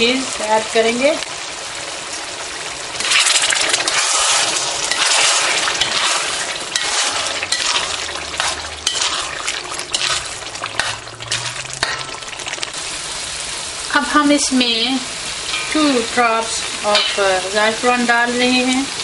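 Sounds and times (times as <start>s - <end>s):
food sizzling in hot oil: 0.0s - 19.0s
metal spoon scraping a pan: 3.0s - 12.5s, 15.4s - 18.1s.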